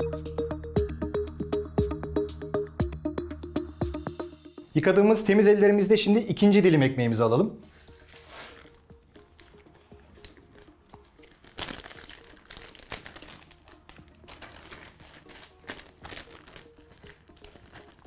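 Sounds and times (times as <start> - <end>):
plastic bag crinkling: 7.7 - 18.0.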